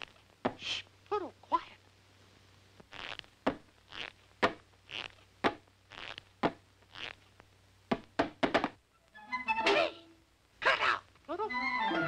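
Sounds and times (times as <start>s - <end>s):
soft hissing sounds: 0.0s - 8.2s
cartoon footstep knocks: 3.4s - 3.7s, 5.4s - 5.7s, 7.9s - 8.8s.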